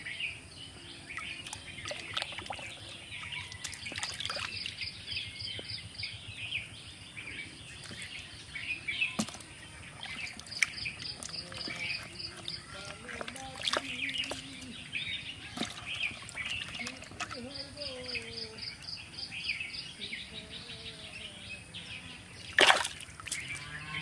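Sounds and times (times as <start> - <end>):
birds chirping: 0.0 - 24.0
muddy water sloshing and splashing: 1.0 - 6.8, 7.6 - 18.8, 22.2 - 24.0.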